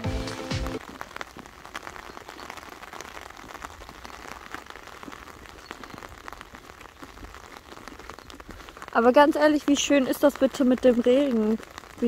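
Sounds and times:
rain pattering on car roof: 0.1s - 12.0s.

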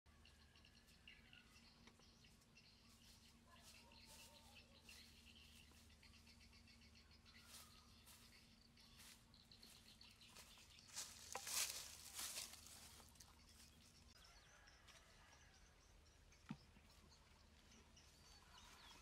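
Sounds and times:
faint high chirping: 0.1s - 19.0s
footsteps crunching through dry leaves: 7.3s - 13.8s.

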